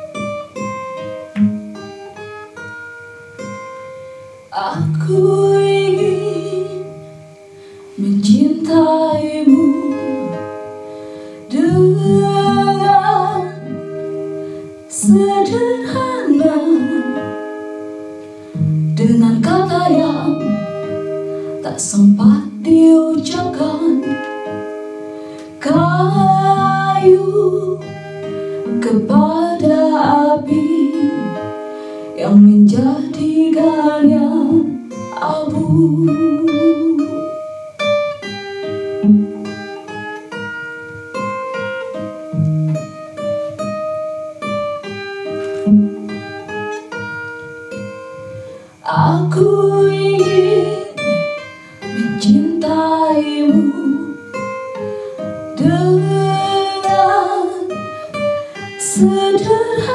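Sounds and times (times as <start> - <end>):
acoustic guitar picked: 0.0 - 59.9
woman singing: 4.5 - 7.4, 8.0 - 10.6, 11.4 - 14.0, 14.8 - 17.7, 18.9 - 24.6, 25.4 - 37.4, 48.8 - 54.5, 55.5 - 59.9.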